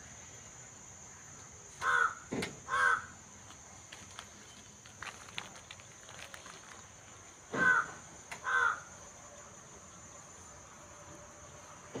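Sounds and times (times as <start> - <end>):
crow cawing: 1.8 - 3.2, 7.6 - 8.9.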